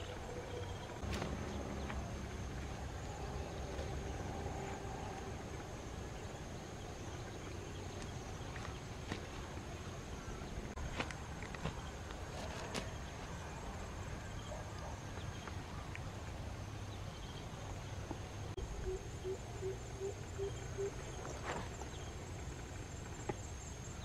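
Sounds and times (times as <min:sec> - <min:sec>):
insects droning: 0:00.0 - 0:24.0
brush rustling: 0:01.0 - 0:02.8, 0:10.7 - 0:13.8.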